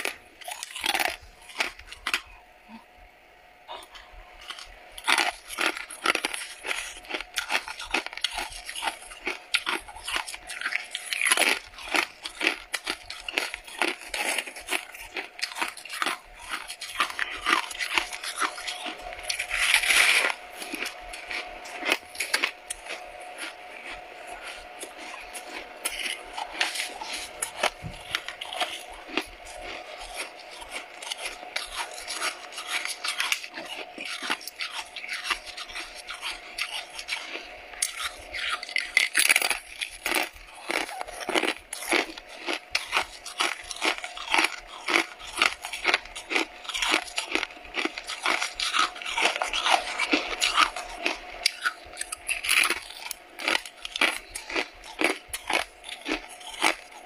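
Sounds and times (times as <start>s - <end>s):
frost crunching being chewed: 0.0s - 2.8s, 3.7s - 57.0s.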